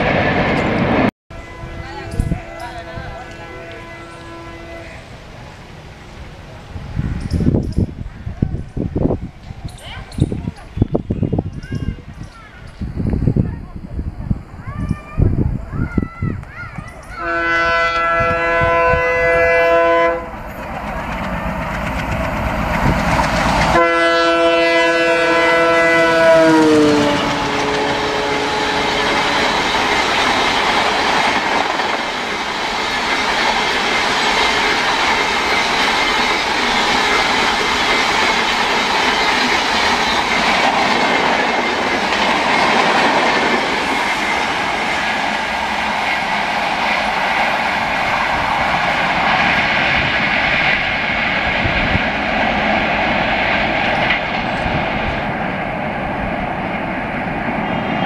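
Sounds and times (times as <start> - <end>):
train coaches clickety-clack: 0.0 - 1.1, 1.7 - 4.4, 5.8 - 58.0
train horn: 1.3 - 5.1, 17.2 - 20.4, 23.7 - 29.6.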